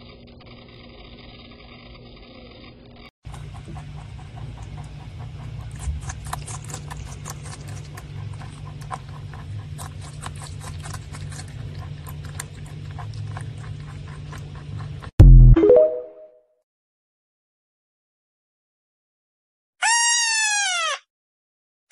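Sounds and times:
rabbit crunching cucumber: 3.2 - 15.1.

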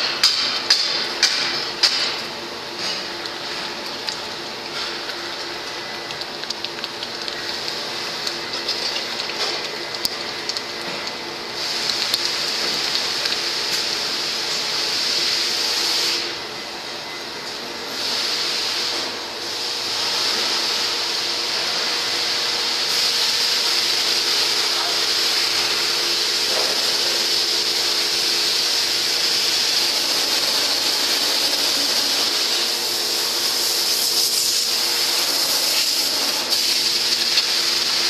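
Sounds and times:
molten metal pouring hiss: 18.0 - 38.0.

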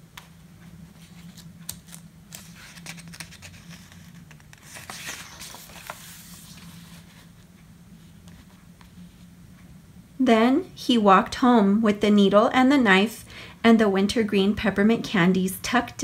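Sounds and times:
faint steady hum: 0.0 - 16.0
book page rustling: 0.8 - 9.3.

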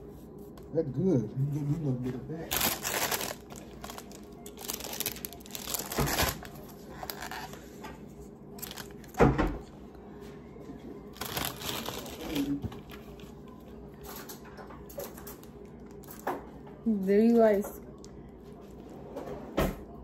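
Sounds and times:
paper crinkling: 2.5 - 7.8, 8.6 - 9.2, 11.1 - 13.4.

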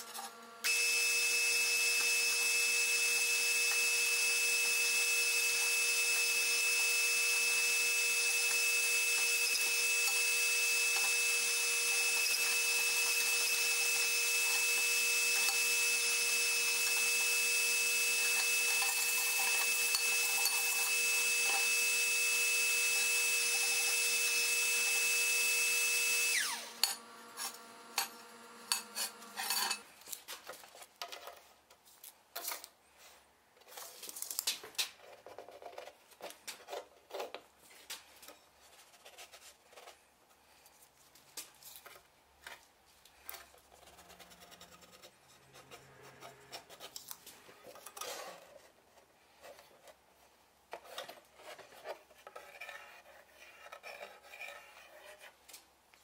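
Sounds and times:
electric motor whining: 0.4 - 29.4
metal clinks and scrapes: 28.0 - 30.0.

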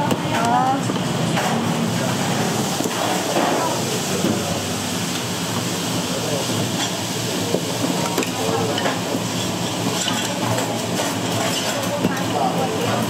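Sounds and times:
faint voices: 0.0 - 4.8, 5.8 - 13.0
kitchen hiss: 2.0 - 11.5
utensils clinking: 7.9 - 13.0.

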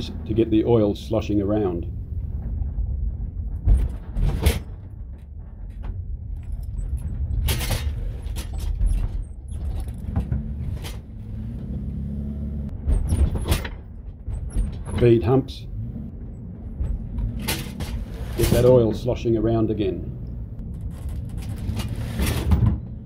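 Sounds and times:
van engine and road rumble: 0.0 - 23.0
load knocking and rattling: 16.0 - 19.1.

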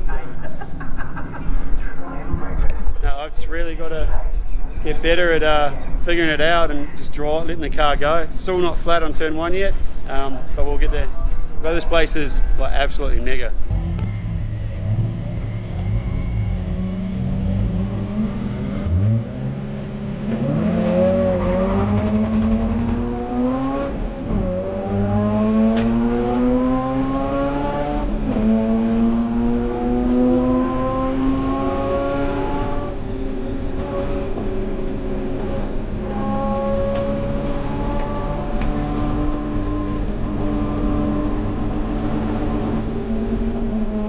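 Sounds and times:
race car engine accelerating: 13.6 - 44.0.

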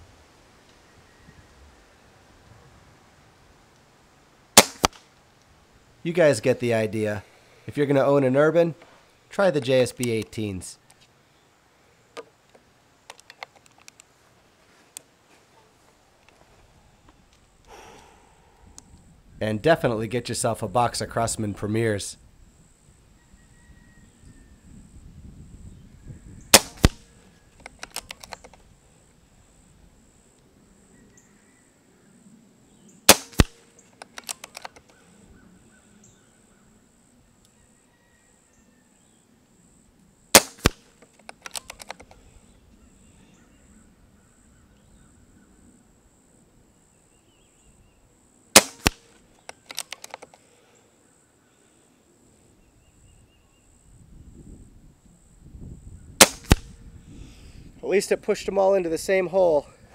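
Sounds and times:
rifle action clicks: 4.6 - 5.0, 13.1 - 14.1, 26.5 - 27.0, 27.6 - 28.6, 33.1 - 35.0, 40.4 - 42.2, 48.6 - 50.4, 56.2 - 56.7
air rifle shot crack: 4.6 - 5.1, 26.5 - 27.1, 33.1 - 33.7, 40.3 - 40.9, 48.6 - 49.1, 56.2 - 56.8
faint pellet strike: 4.6 - 5.1, 26.6 - 27.1, 33.1 - 33.7, 48.6 - 49.1, 56.2 - 56.8.

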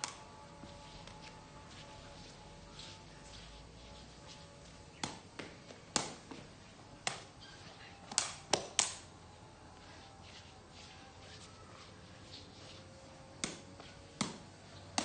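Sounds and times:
ball being kicked: 4.9 - 7.4, 13.4 - 15.0.

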